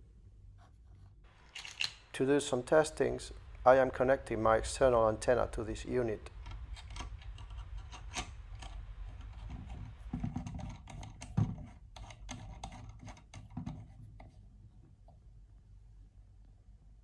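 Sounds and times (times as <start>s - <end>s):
metal adapter clicking and scraping: 1.4s - 2.1s, 6.4s - 13.5s.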